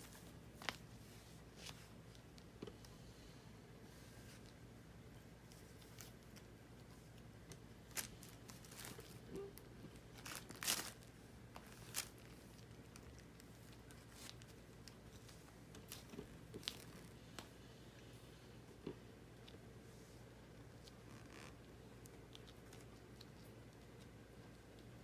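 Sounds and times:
rustling and crinkling toy: 5.4s - 17.5s
plastic wrapper crackle: 7.9s - 15.0s, 15.8s - 17.1s.

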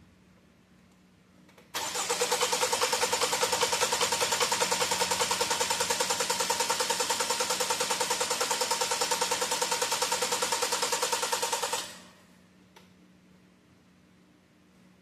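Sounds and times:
engine cranking on starter: 1.8s - 12.0s.

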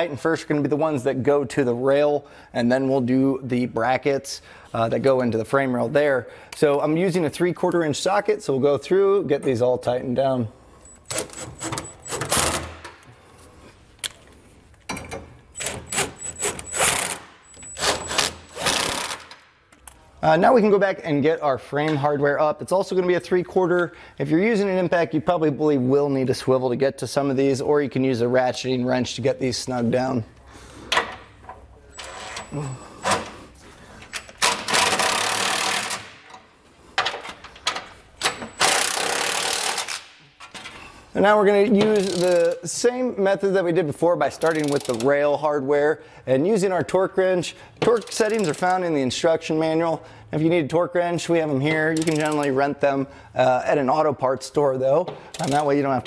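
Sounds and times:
impact wrench running bolts: 10.9s - 13.0s, 14.9s - 19.4s, 34.1s - 36.4s, 38.2s - 40.1s, 41.8s - 42.6s, 44.4s - 45.1s, 47.9s - 48.8s, 52.0s - 52.5s, 55.3s - 55.8s
electric ratchet whirring: 15.6s - 19.3s, 34.4s - 36.0s, 38.6s - 40.0s.

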